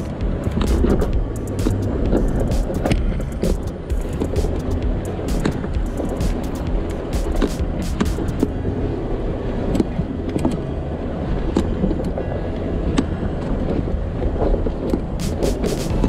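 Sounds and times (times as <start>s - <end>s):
vehicle engine and tyres rumbling: 0.0s - 16.0s.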